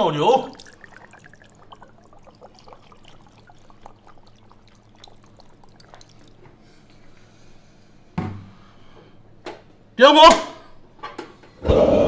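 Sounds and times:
liquid trickling into water: 0.0 - 6.7.

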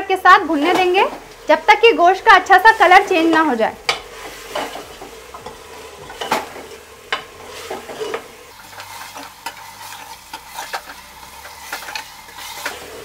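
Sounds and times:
meat sizzling in oil: 0.0 - 13.0
metal ladle scraping a pot: 4.1 - 13.0.

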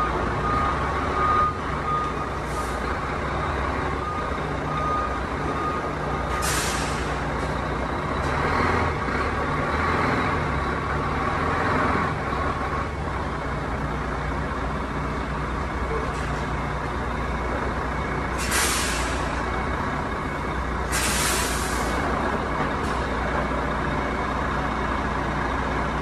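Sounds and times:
reversing beeper: 0.0 - 2.8, 4.0 - 7.2
truck diesel engine running: 0.0 - 26.0
air brake hiss: 6.3 - 7.3, 18.4 - 19.4, 20.9 - 22.0.

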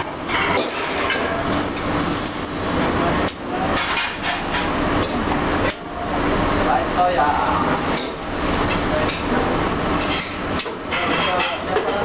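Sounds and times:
ladle clanking and scraping wok: 0.0 - 5.3, 7.8 - 12.0
gas burner rushing: 0.0 - 11.6.

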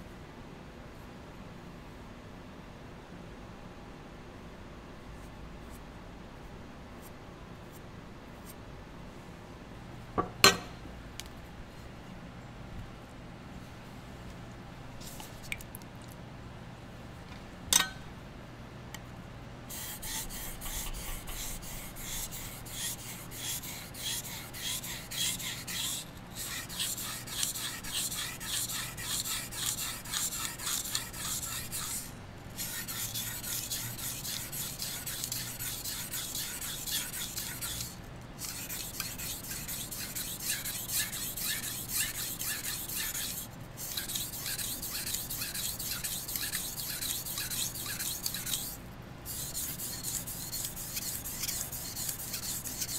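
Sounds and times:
knife scraping on whetstone: 19.7 - 52.9.

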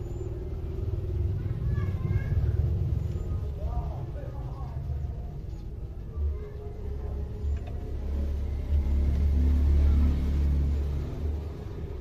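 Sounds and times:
motor vehicle passing: 6.8 - 12.0.

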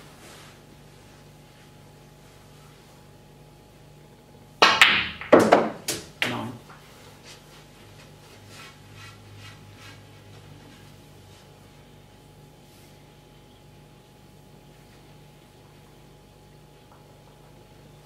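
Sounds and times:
cue striking ball: 4.6 - 6.4
snooker balls colliding: 4.6 - 6.4.

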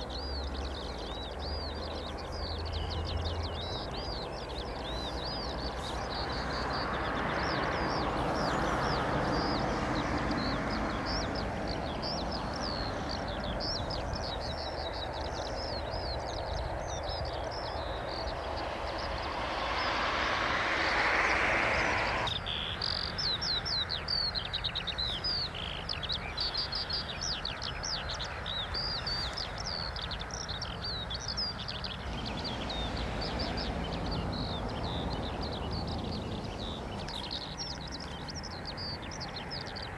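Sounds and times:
steady rushing noise: 0.0 - 22.4
small birds chirping: 0.0 - 39.9.

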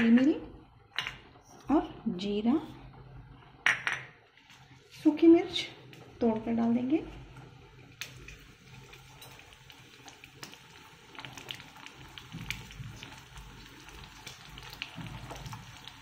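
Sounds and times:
spices sizzling in hot oil: 3.6 - 16.0
small pops and crackles: 9.7 - 16.0.

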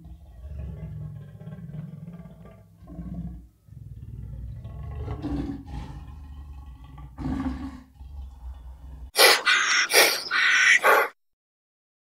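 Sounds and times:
jaguar growling: 0.0 - 11.1
jaguar grunts: 4.8 - 11.1
harsh rasping noise: 9.2 - 11.2.

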